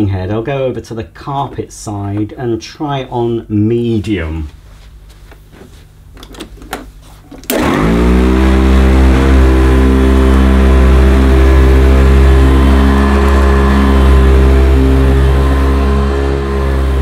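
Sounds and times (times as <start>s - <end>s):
vacuum cleaner running on carpet: 7.5s - 17.0s.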